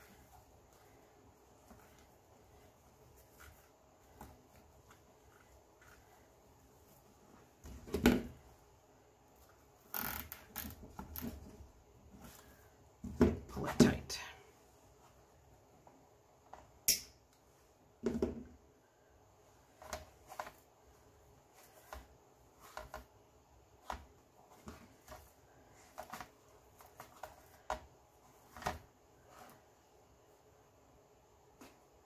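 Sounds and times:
mesh fabric rustling: 0.0 - 12.7.

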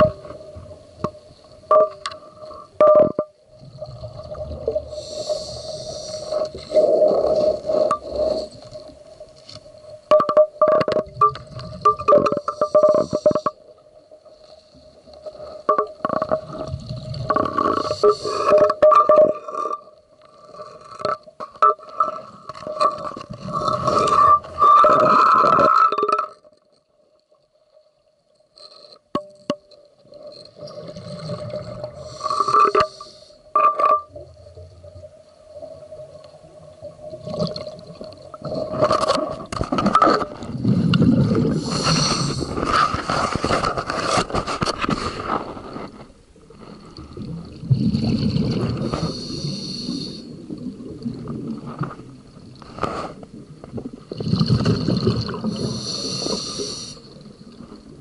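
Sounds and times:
faint steady tone: 0.0 - 39.1
diver breathing through regulator: 4.8 - 8.7, 17.6 - 18.6, 31.8 - 33.5, 41.4 - 43.4, 48.7 - 50.4, 55.4 - 57.2
bubbling exhalation: 47.2 - 51.7, 54.1 - 56.7.

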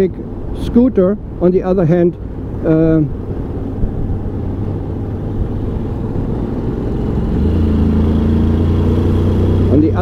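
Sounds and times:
road rumble: 0.0 - 10.0
scooter engine accelerating: 4.9 - 10.0.

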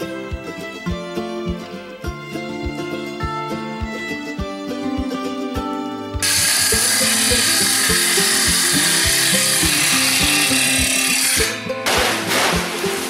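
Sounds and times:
background music with beat: 0.0 - 13.0
table saw cutting wood: 6.2 - 13.0.

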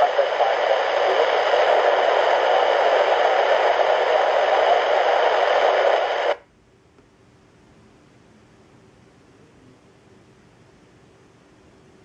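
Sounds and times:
radio static hiss: 0.0 - 6.4.

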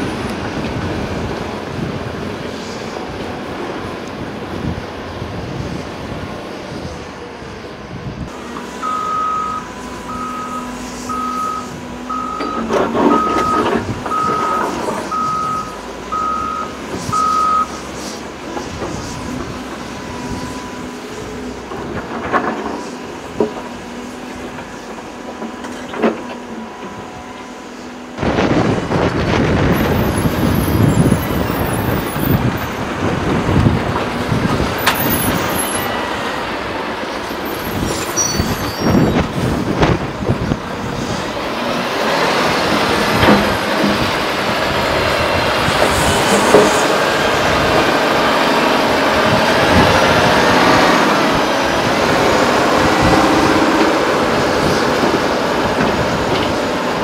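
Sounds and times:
diesel engine running: 0.0 - 57.0
back-up alarm beeping: 8.8 - 17.8
rough rushing rumble: 28.2 - 57.0.

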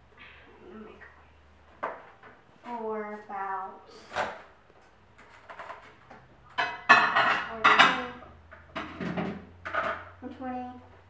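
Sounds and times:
dish clattering and scraping: 5.2 - 10.2.

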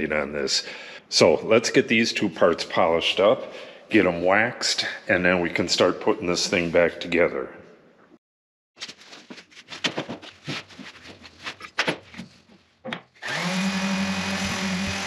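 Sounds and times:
electric sander running: 13.2 - 15.0.

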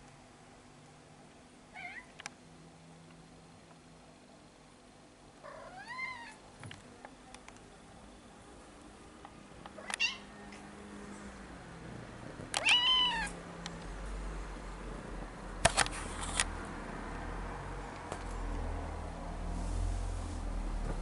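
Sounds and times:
cat meowing: 1.8 - 2.1, 5.5 - 6.4, 9.8 - 10.3, 12.6 - 13.4.

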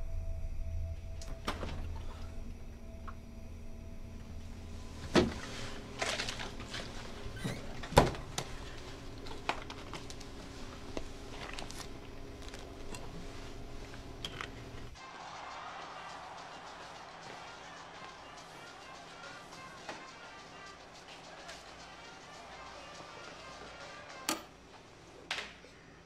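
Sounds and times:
refrigerator hum: 0.0 - 15.0.

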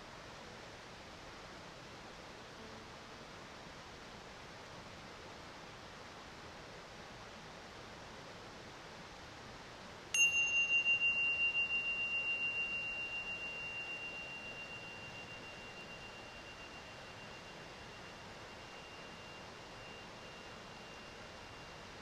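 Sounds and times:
small metal bell ringing: 10.2 - 22.0.

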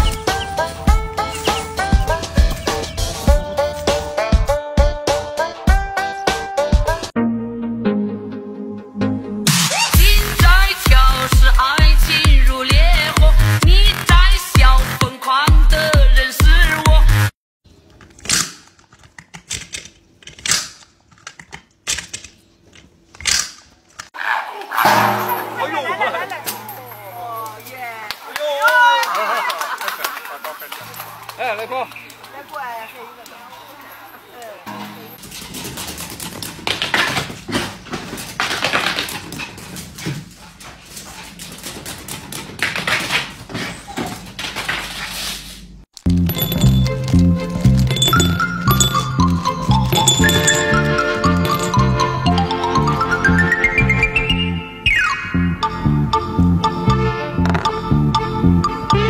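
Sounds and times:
music with a beat: 9.5 - 17.3.

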